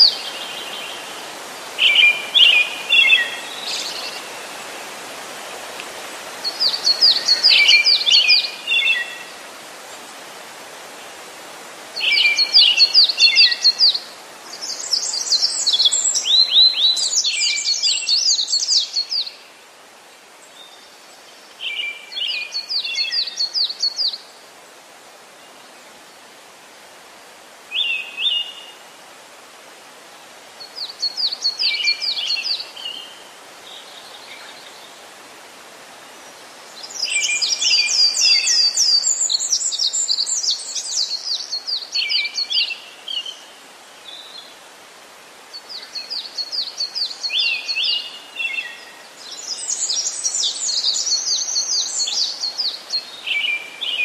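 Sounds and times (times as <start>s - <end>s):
songbirds chirping: 0.0s - 54.0s
steady outdoor hiss: 0.0s - 54.0s.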